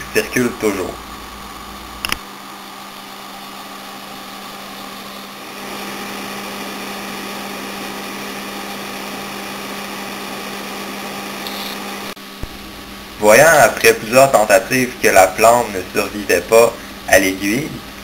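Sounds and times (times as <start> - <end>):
electrical buzz and hiss: 11.4 - 18.0.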